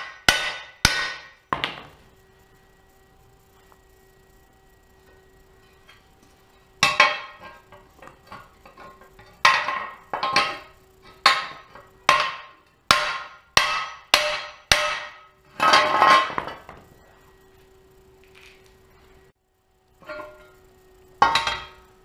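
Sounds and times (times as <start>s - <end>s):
hammer striking metal plate: 0.0s - 1.9s, 6.8s - 7.6s, 8.3s - 16.7s, 21.2s - 21.9s.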